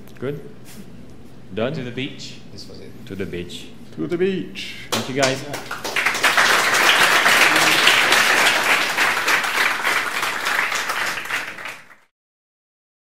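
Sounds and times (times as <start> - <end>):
audience applauding: 4.9 - 12.1.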